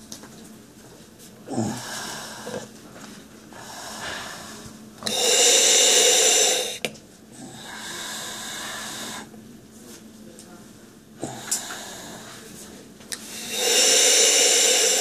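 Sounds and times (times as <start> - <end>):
breaths hissing through valve mouthpiece: 3.6 - 6.9, 13.2 - 15.0.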